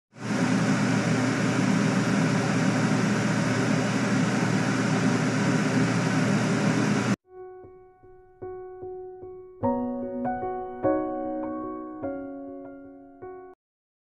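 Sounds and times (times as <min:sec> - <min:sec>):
machine whirring: 0:00.2 - 0:07.2.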